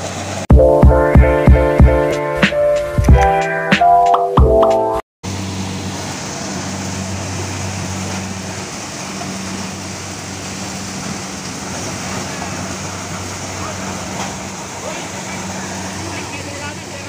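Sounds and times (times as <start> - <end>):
harvester engine droning: 5.2 - 17.0.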